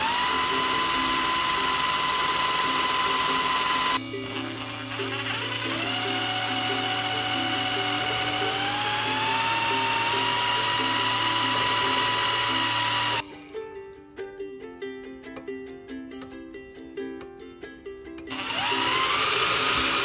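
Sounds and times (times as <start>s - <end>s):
cordless drill motor whining: 0.0s - 13.2s, 18.3s - 20.0s
light plucked background music: 0.2s - 20.0s.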